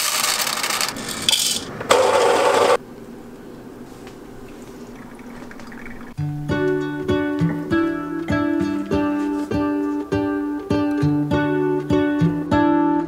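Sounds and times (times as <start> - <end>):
coffee beans rattling into container: 0.0 - 2.8.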